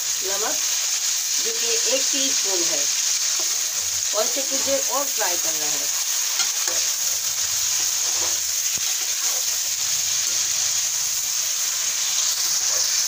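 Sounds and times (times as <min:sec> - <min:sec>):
chicken frying in hot oil: 0:00.0 - 0:13.0
spatula stirring: 0:06.2 - 0:10.8.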